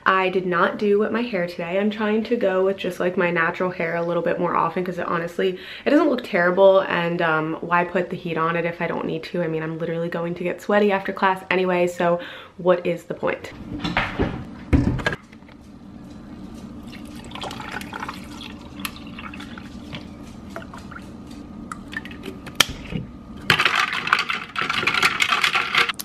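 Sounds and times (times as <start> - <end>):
liquid pouring into plastic cup: 16.8 - 21.0.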